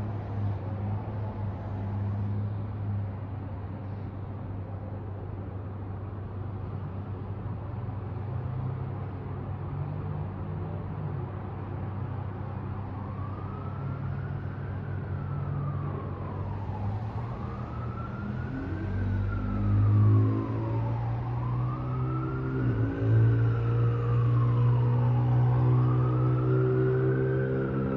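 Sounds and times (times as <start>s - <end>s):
street traffic rumble: 0.0s - 27.9s
distant siren wailing: 12.2s - 27.9s
passing vehicle engine: 13.1s - 27.9s.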